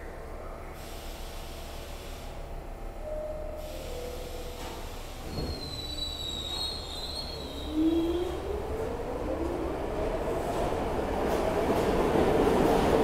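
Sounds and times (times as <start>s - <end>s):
subway train rumbling: 0.0s - 13.0s
high wheel squeal: 5.3s - 8.1s.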